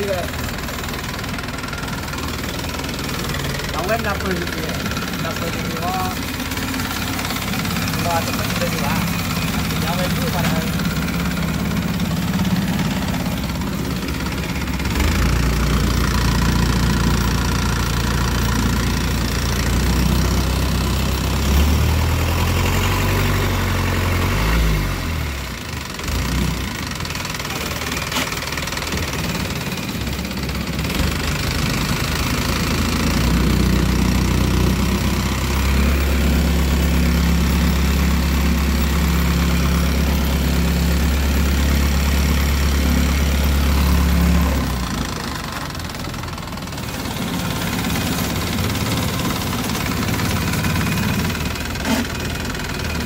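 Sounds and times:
boat engine droning: 0.0 - 23.4.

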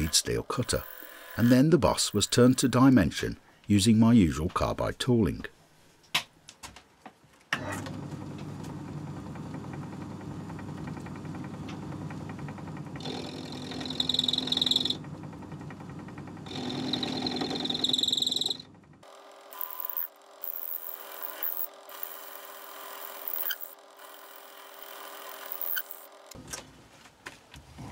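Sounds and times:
lathe motor hum: 0.0 - 1.6, 8.0 - 26.4.

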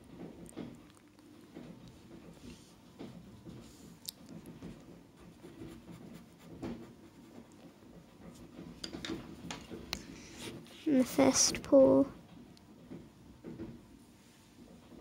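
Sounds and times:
pencil scratching on paper: 5.2 - 7.5, 10.2 - 10.8.

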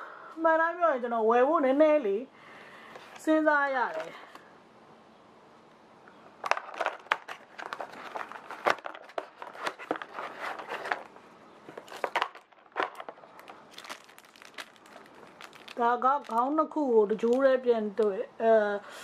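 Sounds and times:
plastic bag crinkling: 6.5 - 17.6.

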